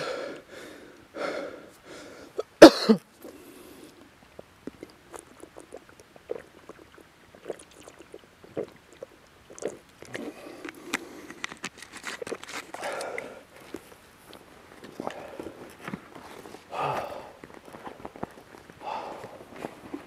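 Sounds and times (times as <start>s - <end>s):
footsteps crunching on trail: 10.8s - 20.0s.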